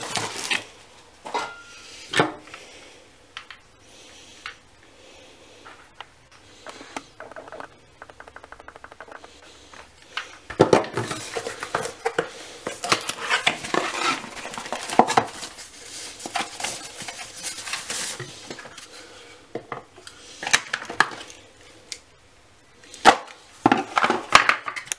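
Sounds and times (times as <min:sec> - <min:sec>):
packaging wrap rustling: 0:00.0 - 0:01.0, 0:10.2 - 0:19.1.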